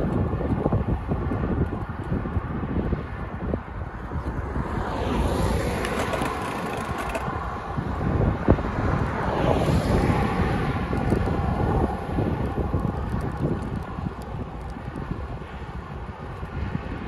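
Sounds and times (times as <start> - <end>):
wind buffeting microphone: 0.0 - 17.0
car overtaking tyre noise: 4.3 - 7.7.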